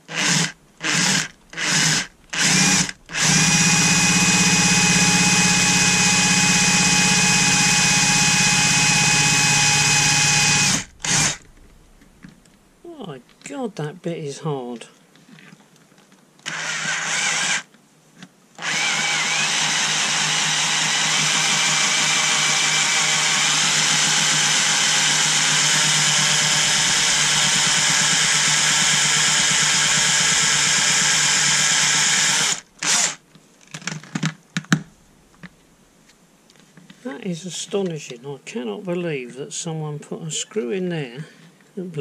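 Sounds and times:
cordless drill drilling into screw: 0.1 - 11.6, 16.4 - 17.7, 18.6 - 33.2.

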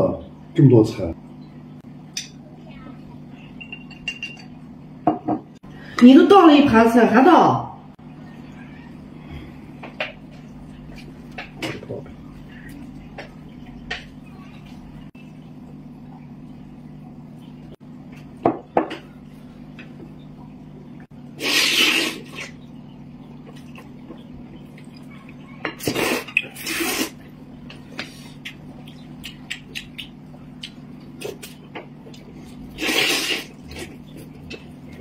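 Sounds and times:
steady low hum: 0.0 - 35.0
noodles slurped: 21.4 - 22.6, 25.8 - 27.2, 32.6 - 34.0.

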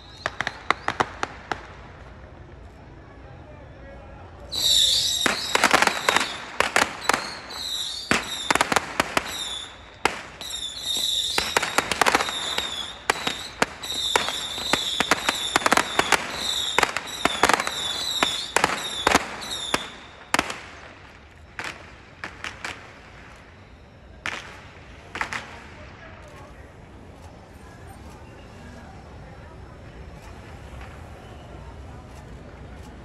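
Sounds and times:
high whistle: 0.0 - 1.2, 4.5 - 24.6
firecrackers cracking: 0.0 - 3.0, 4.4 - 28.2, 29.0 - 33.0.

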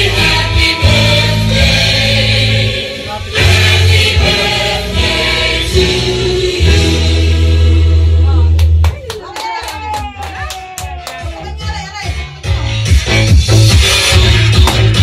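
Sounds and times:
group singing: 0.0 - 8.2
deep steady bass line: 0.0 - 8.9, 11.2 - 15.0.

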